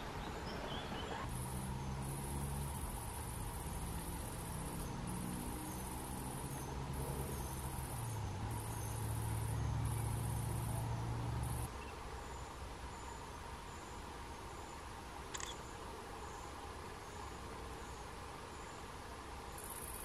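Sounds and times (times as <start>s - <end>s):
faint hiss: 0.0s - 20.0s
insect chirring: 1.2s - 11.7s.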